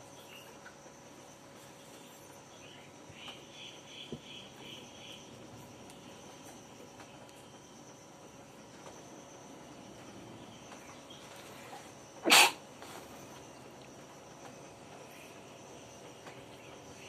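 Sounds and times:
person sneezing: 12.2 - 12.6.

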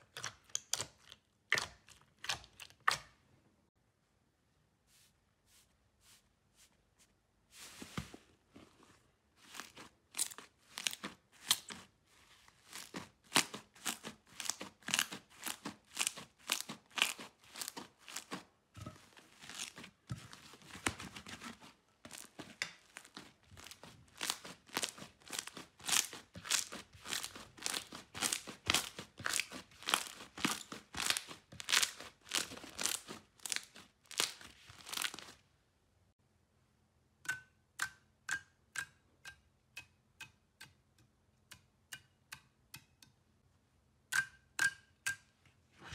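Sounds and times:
slime squishing and popping: 12.7 - 18.4, 22.1 - 35.4.

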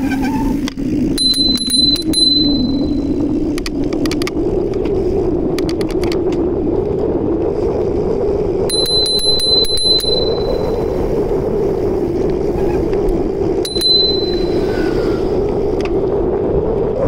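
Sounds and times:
wind and tyre noise: 0.0 - 17.0
bicycle bell ringing: 1.2 - 3.1, 8.7 - 11.0, 13.6 - 15.1.

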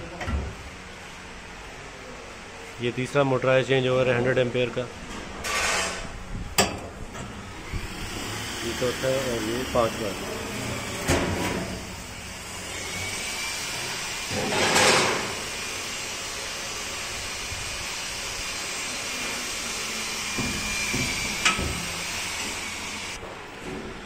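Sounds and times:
steady background noise: 0.0 - 24.0
metal door scraping: 5.3 - 6.2, 10.4 - 12.0, 14.3 - 15.4.

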